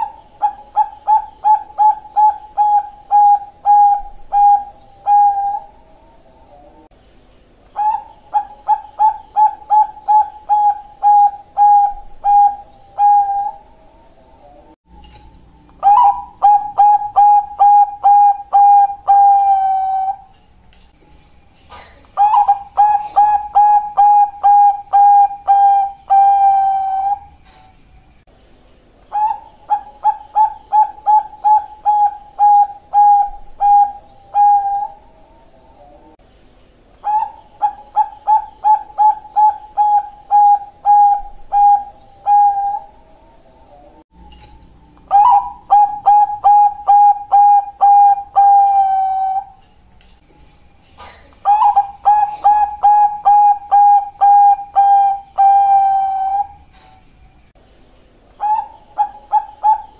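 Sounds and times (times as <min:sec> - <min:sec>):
dove cooing song: 0:00.0 - 0:06.9, 0:07.7 - 0:14.8, 0:15.4 - 0:20.4, 0:21.0 - 0:27.8, 0:29.1 - 0:36.2, 0:37.0 - 0:57.4, 0:58.3 - 0:59.9.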